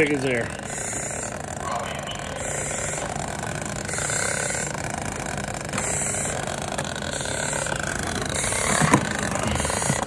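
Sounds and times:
breathing regulator hissing: 0.0s - 1.6s, 2.2s - 10.0s
steady low hum: 0.0s - 10.0s.

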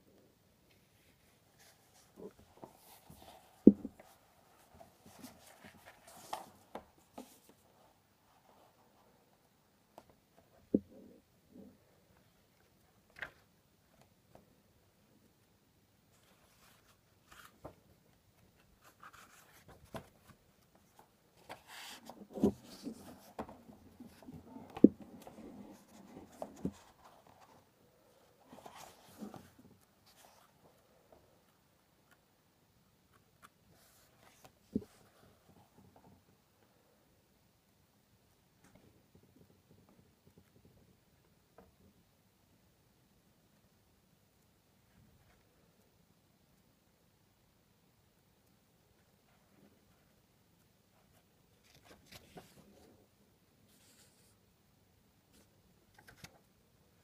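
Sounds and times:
paper pages rustling: 1.6s - 7.7s, 16.2s - 17.8s, 18.4s - 27.6s, 28.4s - 30.5s, 51.6s - 52.8s, 55.3s - 56.5s.

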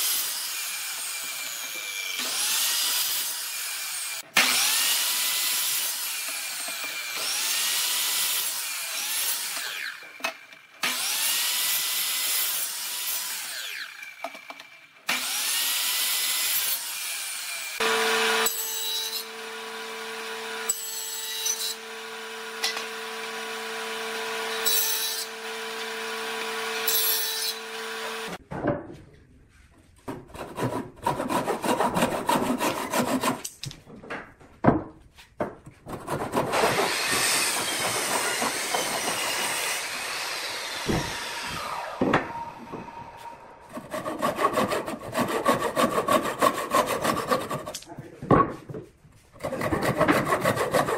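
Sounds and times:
handsaw sawing wood: 0.0s - 10.1s, 10.8s - 14.0s, 15.1s - 28.4s, 30.1s - 33.5s, 35.8s - 47.9s, 49.3s - 50.9s
miter saw cutting wood: 0.0s - 28.4s, 30.4s - 33.5s, 35.9s - 47.8s, 49.4s - 50.9s
table saw humming and cutting: 15.1s - 28.4s, 36.2s - 47.8s.

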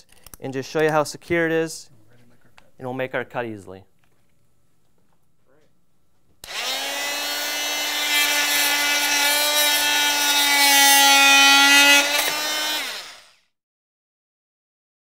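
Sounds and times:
blade cutting into wood: 6.4s - 13.5s
oscillating multi-tool buzzing: 6.4s - 13.5s.

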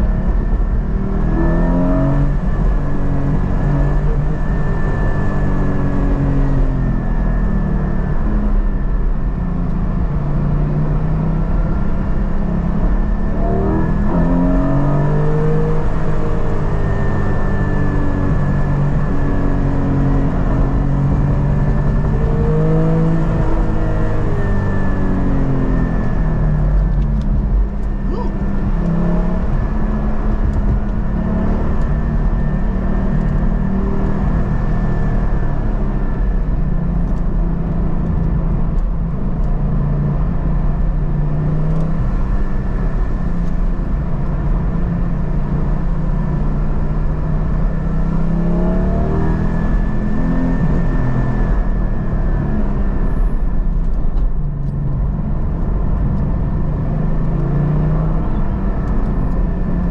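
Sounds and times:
car engine from inside cabin: 0.0s - 59.9s.

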